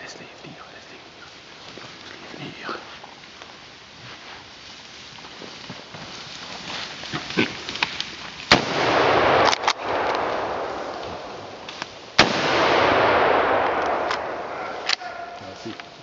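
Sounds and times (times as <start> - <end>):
gunshots with rolling echo: 8.5 - 16.0.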